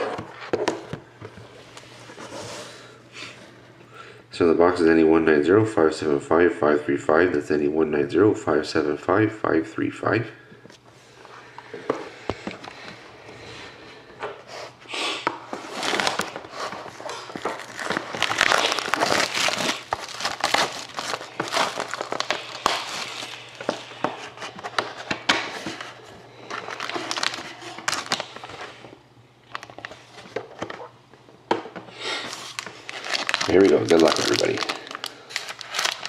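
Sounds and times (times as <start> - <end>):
plastic wrap crinkling: 15.6 - 24.9, 25.7 - 28.8, 29.4 - 30.9, 32.2 - 36.0.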